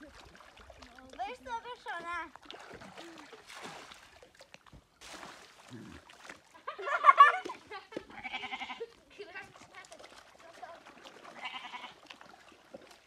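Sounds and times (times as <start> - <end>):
water splashing and sloshing: 0.0 - 13.0
goat bleating: 8.1 - 9.0, 11.3 - 12.0.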